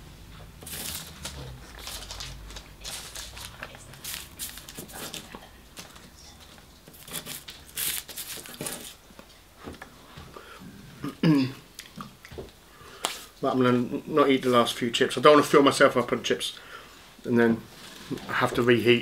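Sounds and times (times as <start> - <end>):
paper wrapping crinkling: 0.6 - 9.0.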